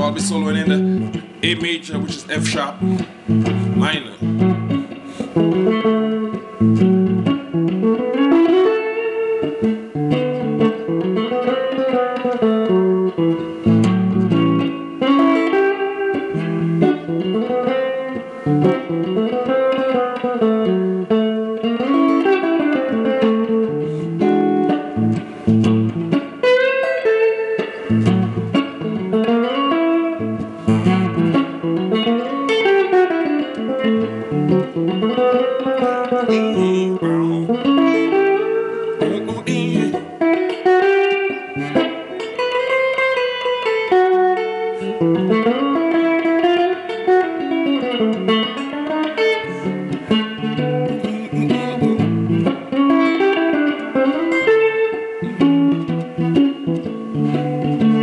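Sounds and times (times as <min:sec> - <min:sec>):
electric guitar blues solo: 0:00.0 - 0:58.0.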